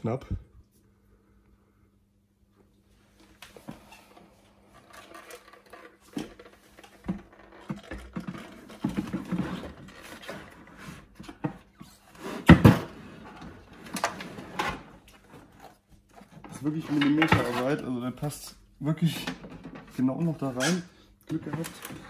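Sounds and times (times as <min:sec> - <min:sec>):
plastic filter knocking and scraping: 0:04.7 - 0:17.8.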